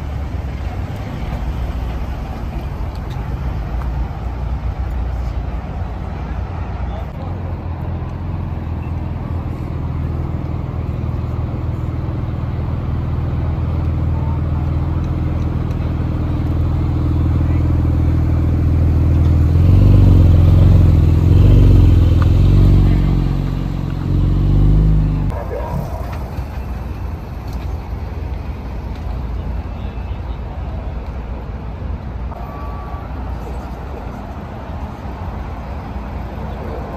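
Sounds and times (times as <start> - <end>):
car engine passing by: 14.5 - 27.5.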